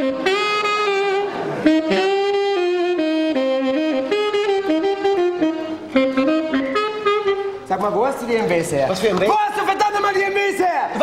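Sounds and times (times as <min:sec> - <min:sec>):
saxophone melody: 0:00.0 - 0:08.4.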